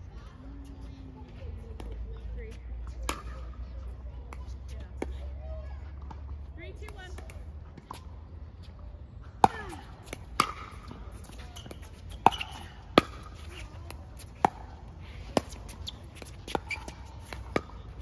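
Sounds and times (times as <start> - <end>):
ball bouncing on hard court: 9.4 - 18.0
paddles hitting ball: 9.4 - 18.0.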